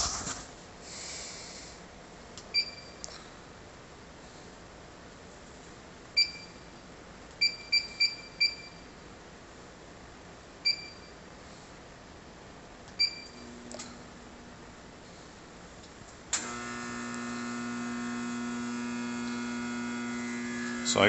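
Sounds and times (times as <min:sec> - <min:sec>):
short high keypad beeps: 0:07.4 - 0:08.9, 0:10.7 - 0:11.2.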